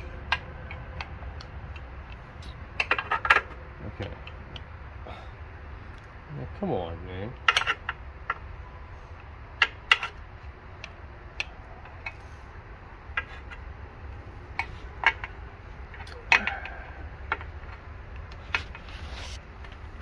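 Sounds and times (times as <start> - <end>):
steady low hum: 0.0 - 20.0
metal clicks and taps: 10.8 - 12.2, 14.5 - 18.8.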